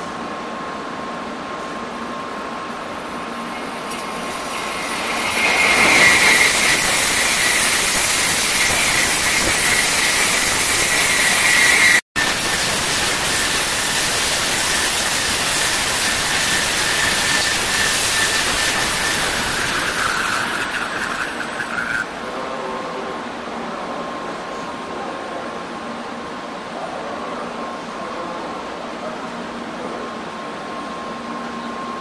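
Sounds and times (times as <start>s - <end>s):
high whine: 0.0s - 23.2s
train passing at high speed: 0.0s - 32.0s.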